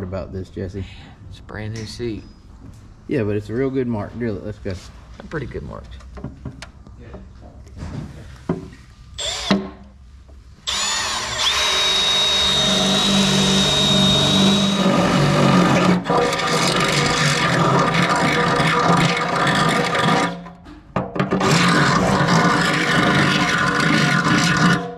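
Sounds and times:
cordless drill boring: 9.2s - 9.7s, 10.7s - 20.4s, 21.4s - 24.8s.

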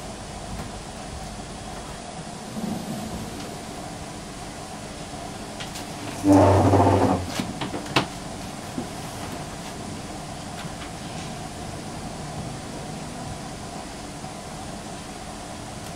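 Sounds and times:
chair scraping across floor: 2.4s - 3.8s, 5.7s - 7.5s.

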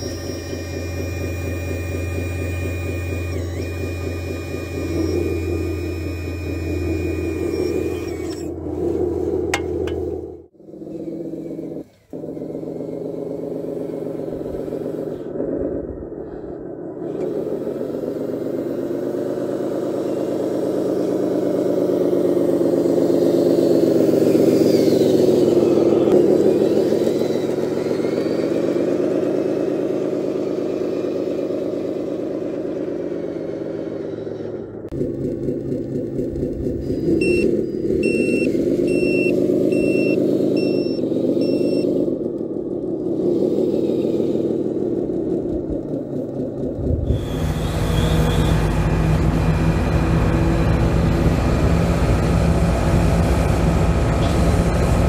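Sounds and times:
reversing beeper beeps: 0.0s - 8.5s, 37.1s - 42.0s
simulated diesel truck engine: 0.0s - 55.0s.

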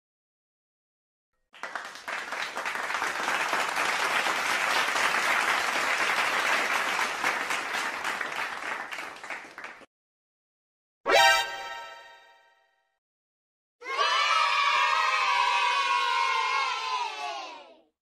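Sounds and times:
crowd applause: 1.5s - 9.9s.

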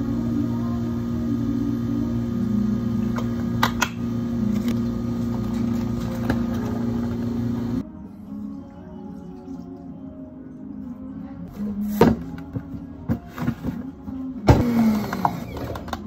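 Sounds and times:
electrical hum of equipment: 0.0s - 7.8s.

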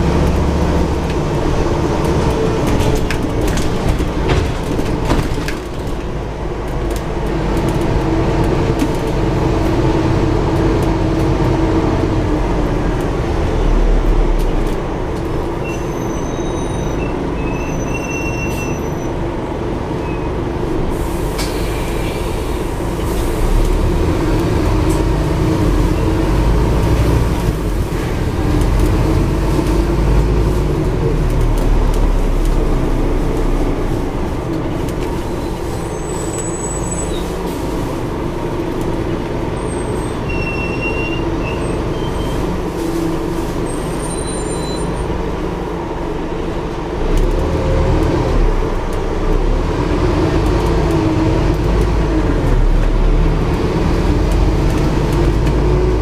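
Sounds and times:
bus diesel engine running: 0.0s - 56.0s
road noise: 0.0s - 56.0s
brief high squeaks: 15.6s - 19.1s, 43.9s - 45.0s.

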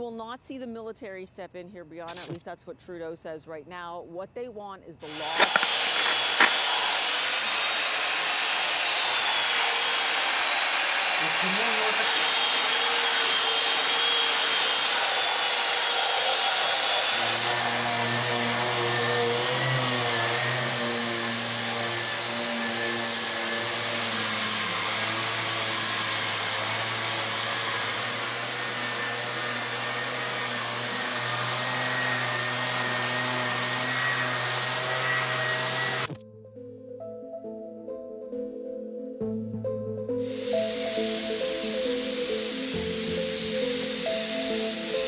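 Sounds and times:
angle grinder on epoxy: 5.1s - 36.2s, 40.2s - 45.0s
random orbital sander whirring: 5.1s - 36.2s, 40.2s - 45.0s.

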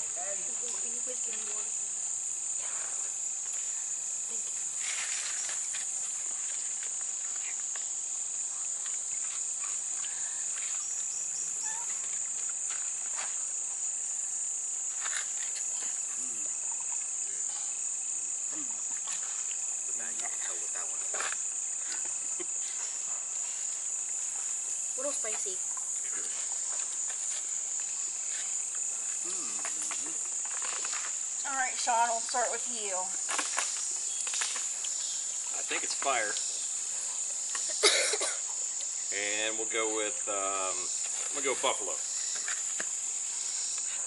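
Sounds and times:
high-pitched insect chorus: 0.0s - 44.0s.

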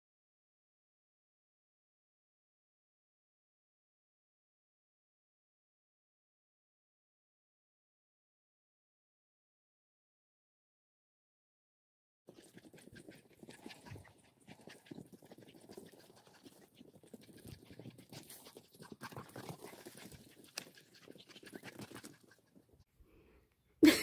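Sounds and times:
dogs scuffing on dry dirt: 12.5s - 22.5s.

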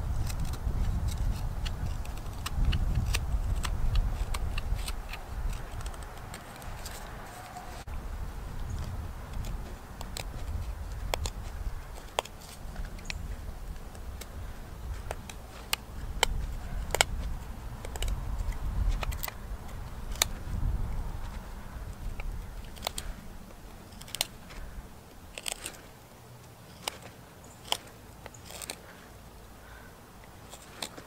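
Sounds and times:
knife whittling wood: 25.3s - 25.9s, 26.7s - 29.0s, 30.4s - 31.0s.

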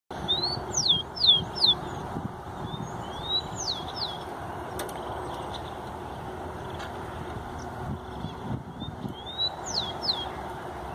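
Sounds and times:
sparrow singing whistles: 0.3s - 2.0s, 2.6s - 4.2s, 8.7s - 10.4s.

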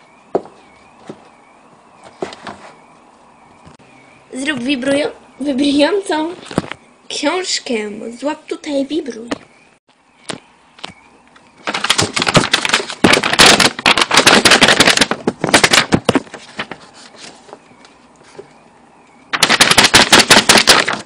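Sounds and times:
book pages rattling and flapping: 2.0s - 2.8s, 6.4s - 6.8s, 10.3s - 18.6s, 19.3s - 21.0s.

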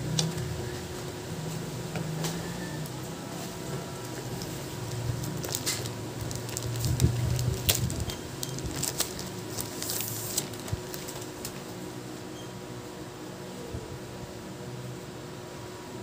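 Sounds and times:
steady low hum: 0.0s - 16.0s
plastic bag crinkling: 4.0s - 11.6s.

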